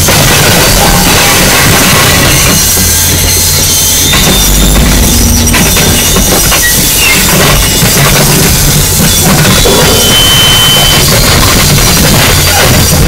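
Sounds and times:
distorted harsh noise music: 0.0s - 13.0s
heavy low rumble: 0.1s - 10.1s
thin high steady whine: 2.2s - 9.0s.

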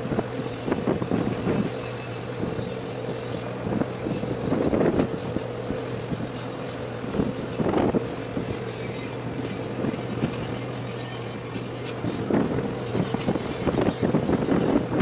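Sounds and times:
diesel engines droning: 0.0s - 15.0s
wind noise on microphone: 0.0s - 15.0s.

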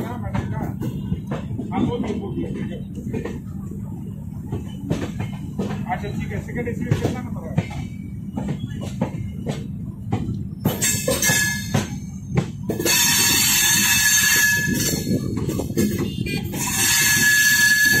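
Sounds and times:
train wheels clacking: 0.0s - 18.0s
train wheels rumbling on tracks: 0.0s - 18.0s
metallic wheel screeching: 10.7s - 18.0s.

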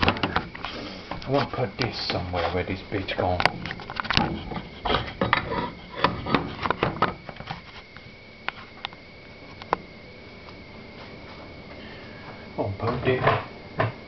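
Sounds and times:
rummaging knocks and clicks: 0.0s - 7.7s
faint high whine: 0.0s - 14.0s.

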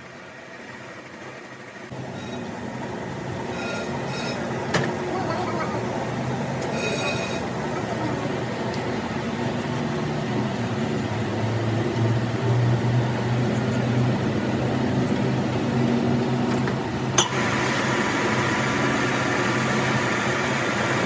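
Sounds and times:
lathe humming: 0.0s - 16.2s.

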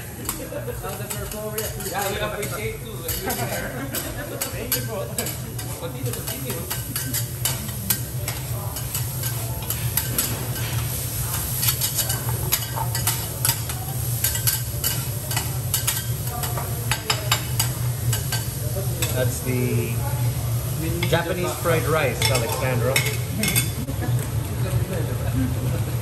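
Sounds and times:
rice sizzling: 0.0s - 26.0s
metal spatulas clacking on griddle: 0.2s - 19.2s.

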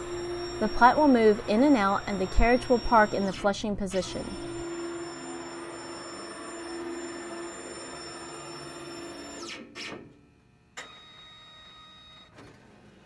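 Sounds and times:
carriage motor whine: 0.0s - 9.5s
printer drive motor whine: 0.0s - 9.7s, 10.8s - 12.4s.

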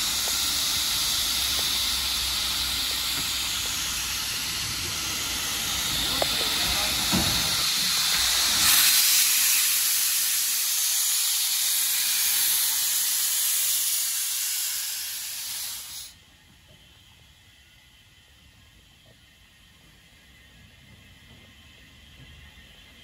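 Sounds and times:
steam locomotive venting steam: 0.0s - 23.0s.

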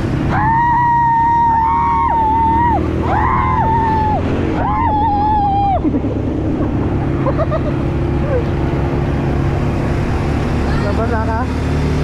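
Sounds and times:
atv engine running: 0.0s - 12.0s
people yelling excitedly: 0.3s - 5.8s.

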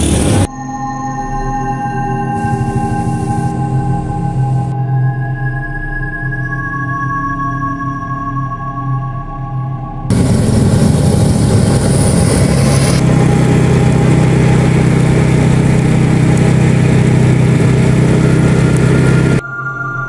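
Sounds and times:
road and wind noise: 0.0s - 0.5s, 10.1s - 19.4s
scooter engine running: 0.0s - 0.5s, 2.4s - 4.8s, 10.1s - 19.4s.

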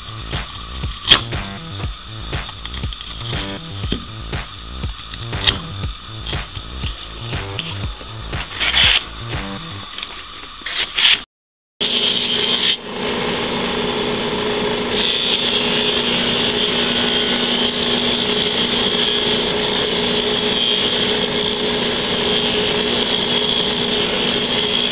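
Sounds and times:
bench motor humming: 0.0s - 10.0s
wood sanding hiss: 0.0s - 10.0s.

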